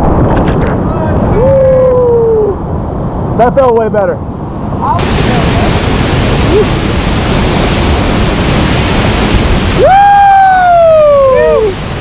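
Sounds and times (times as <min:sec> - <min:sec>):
person whooping: 0:01.3 - 0:02.6, 0:09.8 - 0:11.8
whitewater rushing: 0:04.2 - 0:12.0.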